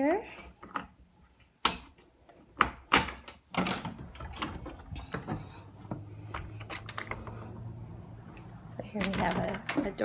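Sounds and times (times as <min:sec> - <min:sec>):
door rattling: 0:02.7 - 0:07.5, 0:08.9 - 0:10.0.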